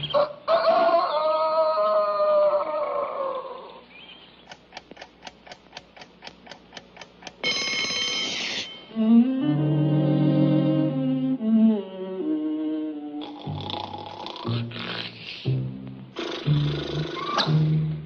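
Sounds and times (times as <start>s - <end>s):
alarm clock ticking: 5.2s - 8.9s
alarm clock bell ringing: 7.4s - 8.9s.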